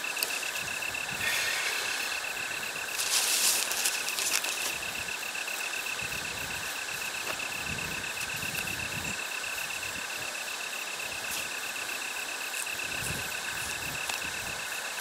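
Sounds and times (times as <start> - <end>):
cricket trilling: 0.0 - 15.0
tent fabric rustling: 1.4 - 4.9.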